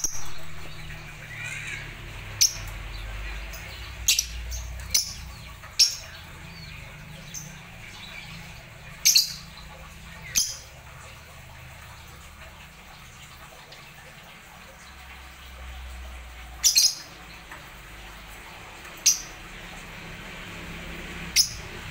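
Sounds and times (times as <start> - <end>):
lovebirds chirping: 0.0 - 11.1.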